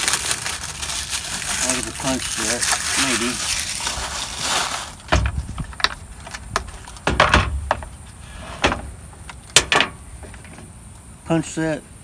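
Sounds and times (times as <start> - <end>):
plastic wrap crinkling: 0.0 - 7.0.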